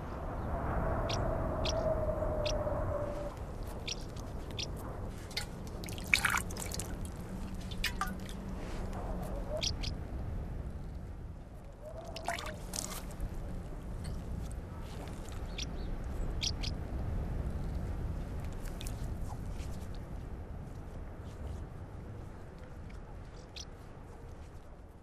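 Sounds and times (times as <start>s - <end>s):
water drips and splashes: 3.8s - 8.5s, 12.0s - 13.2s.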